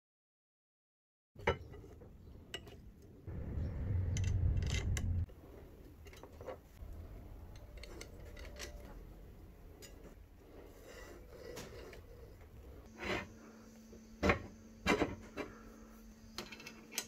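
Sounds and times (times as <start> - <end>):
low rubbing rumble: 3.3 - 6.0, 6.7 - 9.8.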